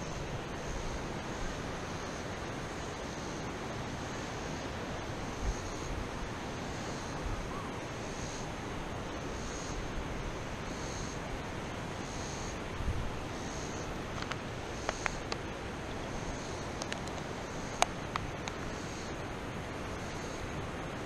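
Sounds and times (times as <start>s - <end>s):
faint high buzz: 0.0s - 21.0s
wind buffeting microphone: 12.6s - 18.7s.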